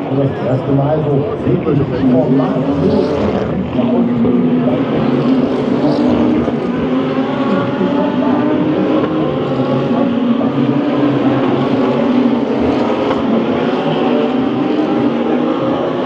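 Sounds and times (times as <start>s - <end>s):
race car engines roaring: 0.0s - 16.0s.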